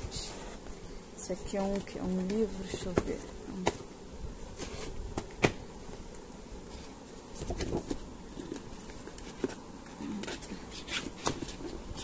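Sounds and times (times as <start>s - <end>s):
paper and cardboard handling: 4.4s - 5.6s, 6.7s - 12.0s.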